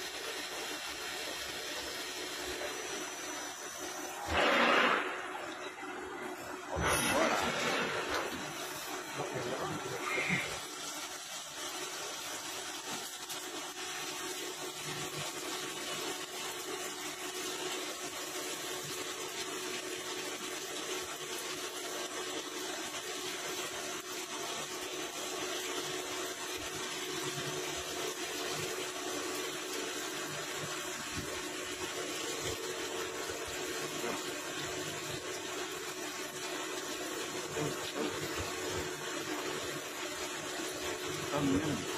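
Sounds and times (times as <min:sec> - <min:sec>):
coolant splashing: 0:00.8 - 0:41.9.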